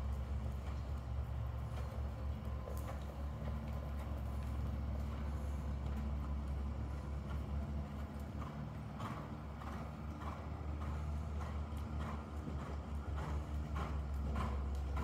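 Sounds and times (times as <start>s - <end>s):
hoofbeats on sand: 0.0s - 15.0s.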